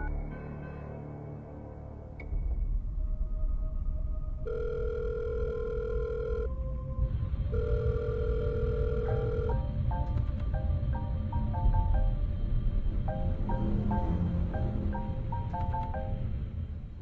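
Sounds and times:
steady low rumble: 0:02.0 - 0:17.0
phone ringback tone: 0:04.5 - 0:06.5, 0:07.5 - 0:09.8.

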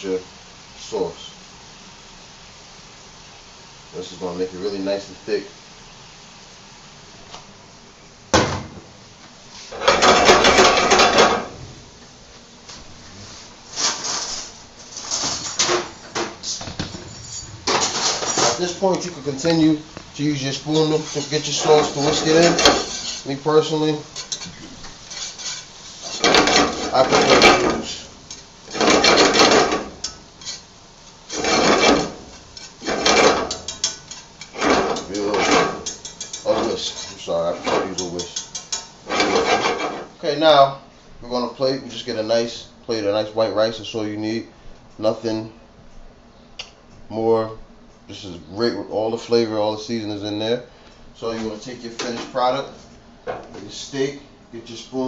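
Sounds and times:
steady background hiss: 0:00.0 - 0:55.0
metal scraping cast iron skillet: 0:17.0 - 0:40.2.

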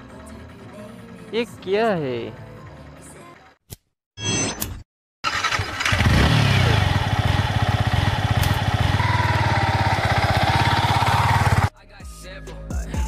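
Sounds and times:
motorcycle engine starting and running: 0:05.2 - 0:11.7.

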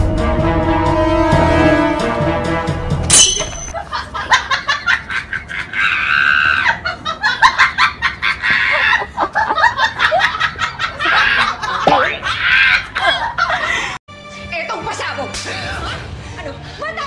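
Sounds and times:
girls shrieking with laughter: 0:04.8 - 0:13.7.

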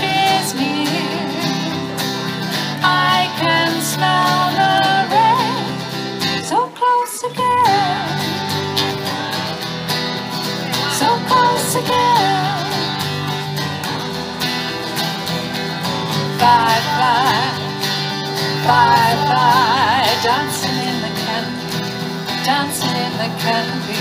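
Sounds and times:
strummed acoustic guitars: 0:00.0 - 0:24.0.

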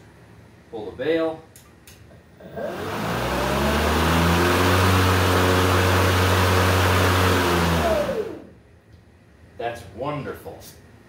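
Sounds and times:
electric lawn mower spinning up: 0:02.4 - 0:08.5.

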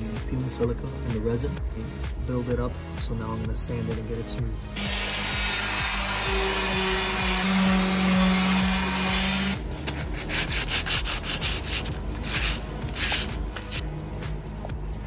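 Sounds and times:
electric orbital sander whirring: 0:04.8 - 0:13.8
hand sanding strokes: 0:04.8 - 0:13.8.

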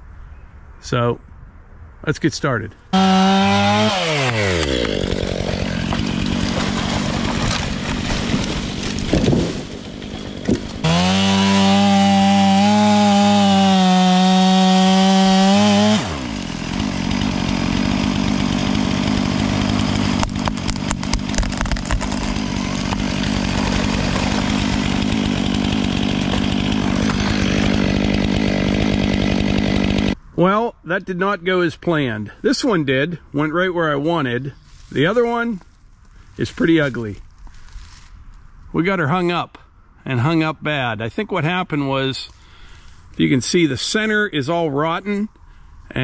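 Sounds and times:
chainsaw cutting: 0:02.9 - 0:30.2.

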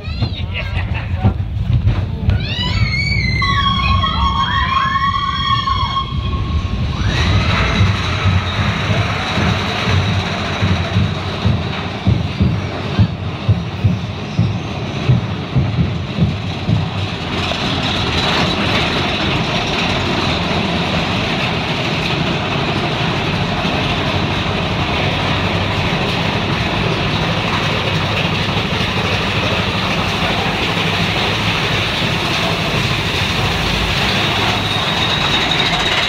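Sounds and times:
roller coaster rumbling and rattling: 0:00.0 - 0:36.0.

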